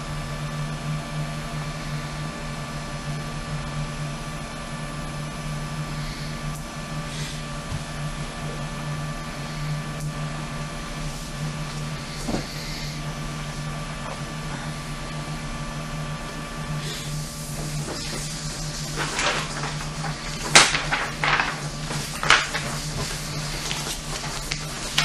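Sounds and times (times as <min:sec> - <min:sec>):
tape hiss and electrical hum: 0:00.0 - 0:25.0.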